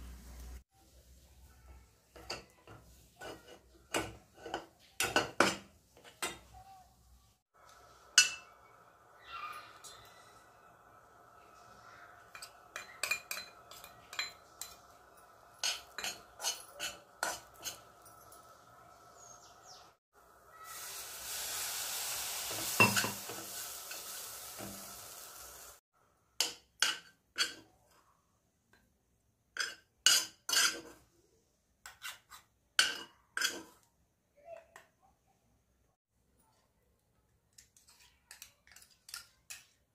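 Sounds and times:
metal spoon scraping pan: 0:02.2 - 0:06.5, 0:08.1 - 0:08.8, 0:12.2 - 0:18.5, 0:26.8 - 0:27.8, 0:29.6 - 0:31.1, 0:31.8 - 0:33.9
hot pan sizzling: 0:07.5 - 0:25.8.

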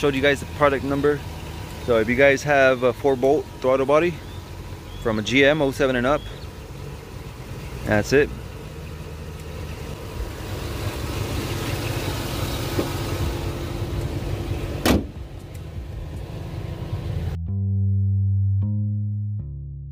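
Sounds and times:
car engine idling: 0:00.0 - 0:17.4
hood slammed shut: 0:12.5 - 0:13.4, 0:14.6 - 0:15.4.

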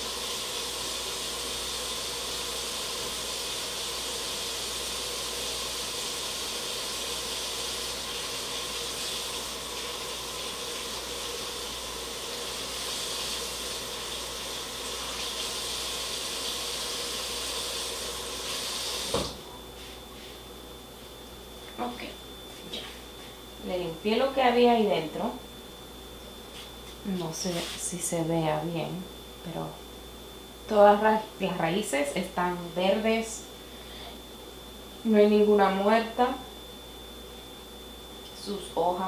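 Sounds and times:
tap water running: 0:00.0 - 0:19.5
tap shut-off knock: 0:19.1 - 0:19.4.

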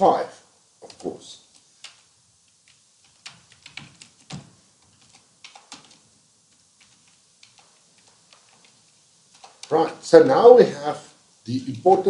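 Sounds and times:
keyboard typing clicks: 0:00.8 - 0:09.8.

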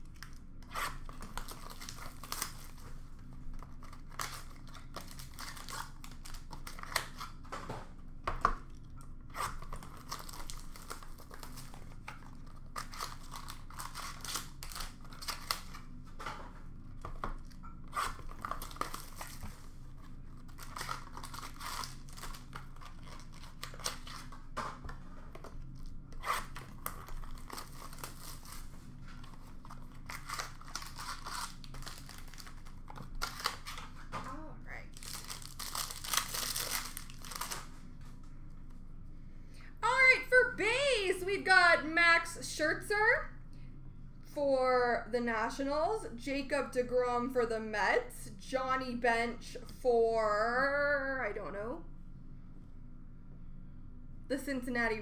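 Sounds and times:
card wrappers tearing and crinkling: 0:00.0 - 0:07.5, 0:09.3 - 0:16.0, 0:17.1 - 0:24.4, 0:25.7 - 0:34.1, 0:34.8 - 0:37.9.

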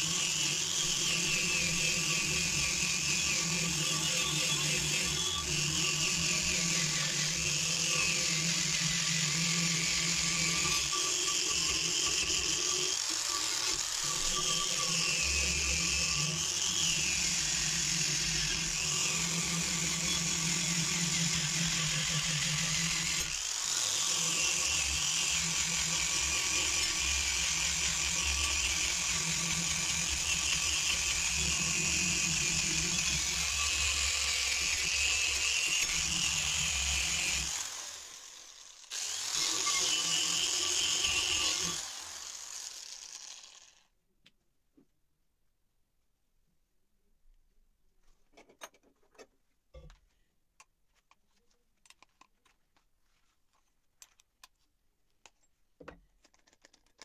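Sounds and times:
angle grinder grinding metal: 0:00.0 - 0:43.8.

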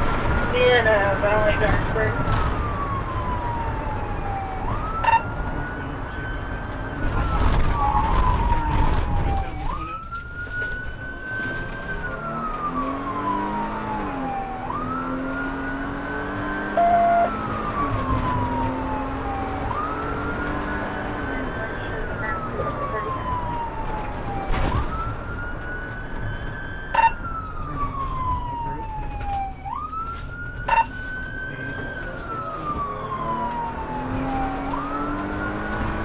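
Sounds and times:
car engine and road rumble: 0:00.0 - 0:36.0
police siren wailing: 0:00.0 - 0:36.0
short loud beep: 0:16.8 - 0:17.3.

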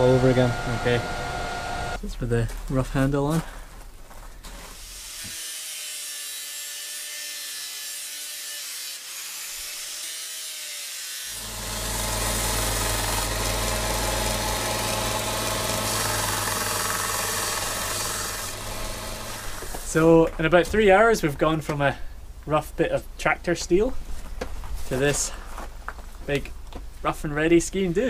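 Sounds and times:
angle grinder sanding wood: 0:00.0 - 0:02.0, 0:04.5 - 0:20.1
sanding drum motor humming: 0:00.0 - 0:02.0, 0:11.3 - 0:20.0
wood rasping on abrasive: 0:00.0 - 0:02.0, 0:04.5 - 0:20.1.

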